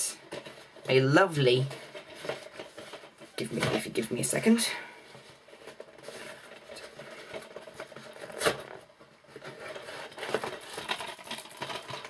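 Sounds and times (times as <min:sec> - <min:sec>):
cardboard packaging being torn: 0:05.6 - 0:12.0.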